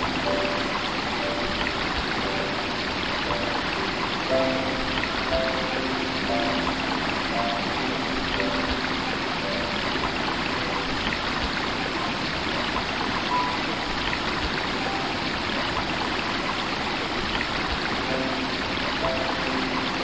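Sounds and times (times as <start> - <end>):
stream flowing over rocks: 0.0 - 20.0.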